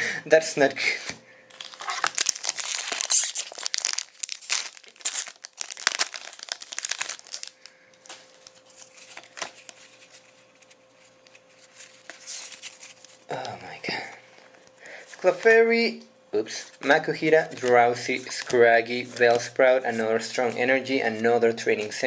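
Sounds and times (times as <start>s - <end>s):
foil wrapper crinkling and tearing: 1.5s - 13.6s, 16.7s - 22.0s.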